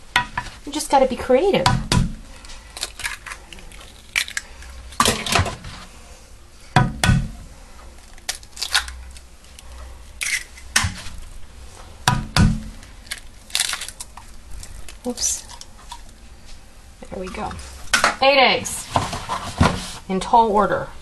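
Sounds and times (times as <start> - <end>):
eggshells cracking: 2.4 - 5.4, 7.9 - 11.3, 12.7 - 16.2.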